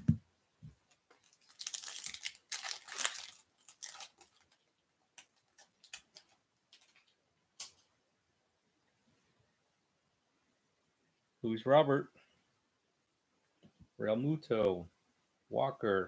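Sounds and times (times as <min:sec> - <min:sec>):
wrapper crackling and tearing: 0:01.2 - 0:07.1.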